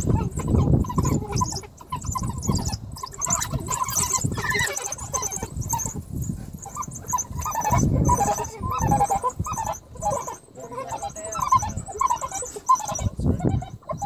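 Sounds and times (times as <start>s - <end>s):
wild dogs twittering chirps: 0.0s - 14.0s.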